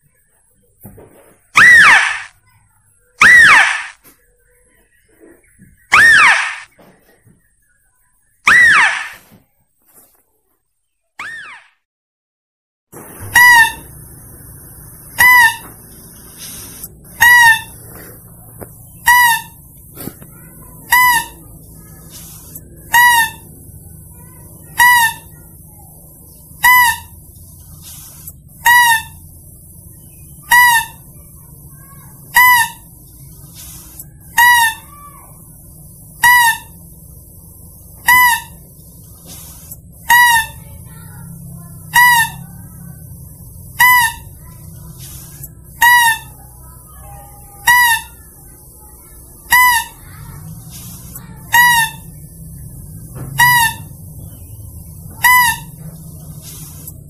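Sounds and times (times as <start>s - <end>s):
animal lure call cry: 1.6s - 2.4s, 3.2s - 4.1s, 5.8s - 6.8s, 8.4s - 9.2s, 11.2s - 11.7s, 13.2s - 56.9s
faint steady hum: 13.0s - 57.0s.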